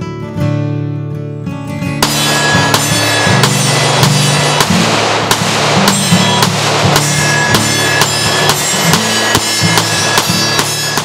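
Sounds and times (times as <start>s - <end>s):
bass line: 2.0s - 9.4s
drum beat: 2.0s - 11.0s.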